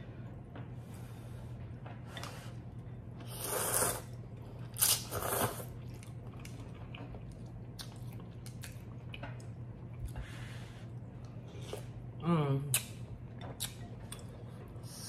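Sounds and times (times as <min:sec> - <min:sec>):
person slurping noodles: 0:03.3 - 0:04.2.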